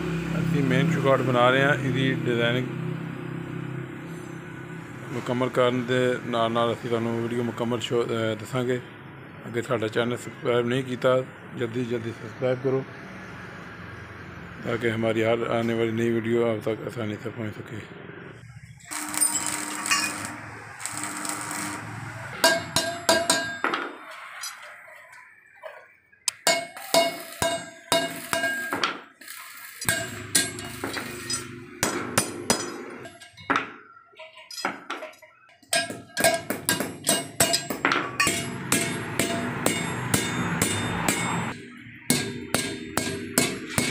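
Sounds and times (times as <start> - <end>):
electric arc welding crackle: 18.8 - 23.1, 26.8 - 28.5, 29.2 - 31.5
hammer striking steel: 18.9 - 24.7, 26.3 - 33.7, 35.7 - 43.9.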